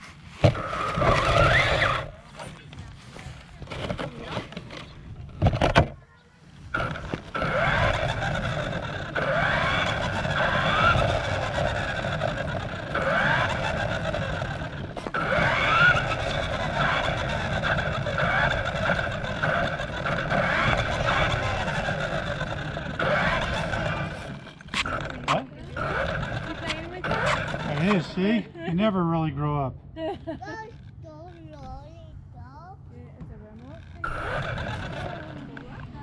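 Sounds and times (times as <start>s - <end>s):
small tyres rolling on concrete: 0.0s - 28.4s, 33.3s - 36.0s
remote-control car motor whining: 0.4s - 2.4s, 6.7s - 28.4s, 33.4s - 36.0s.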